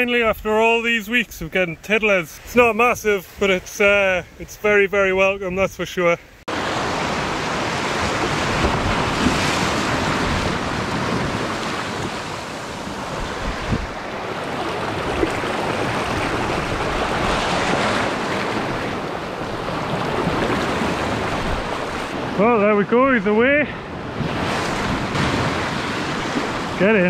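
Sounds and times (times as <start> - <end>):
sea surf on rocky shore: 0.0 - 27.0
wind rumbling on microphone: 6.6 - 22.4, 23.8 - 26.8.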